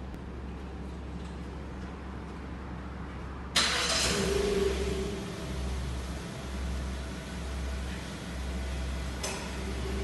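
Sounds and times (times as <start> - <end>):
car engine idling: 3.6 - 10.0.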